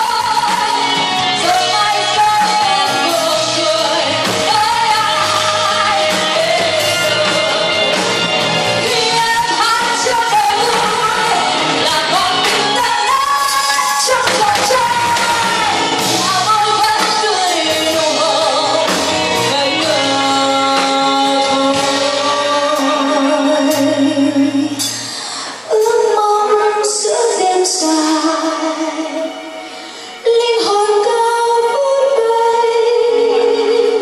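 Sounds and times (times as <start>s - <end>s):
live pop band playing: 0.0s - 34.0s
woman singing lead: 0.0s - 34.0s.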